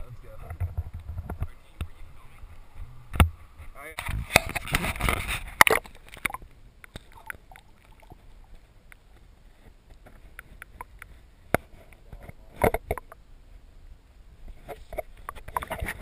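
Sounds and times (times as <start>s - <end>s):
muffled underwater noise: 0.0s - 8.7s.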